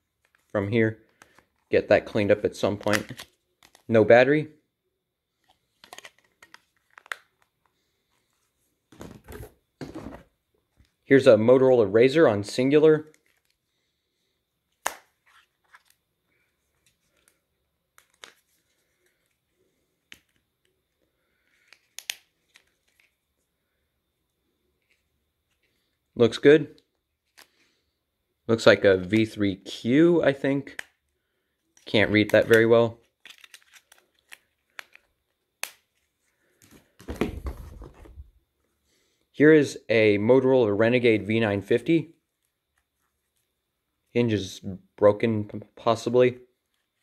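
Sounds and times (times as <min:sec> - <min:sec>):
sharp plastic snap: 0:14.8 - 0:15.1, 0:21.9 - 0:22.3.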